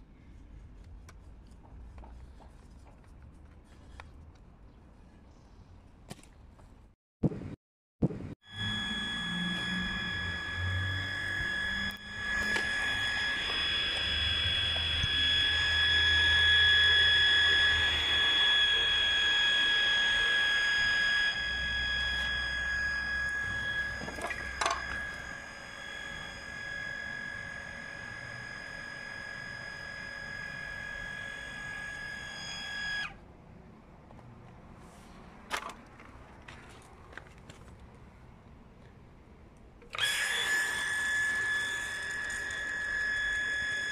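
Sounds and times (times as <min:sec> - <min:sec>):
water pump whining and humming: 0:08.4 - 0:33.2, 0:39.8 - 0:43.9.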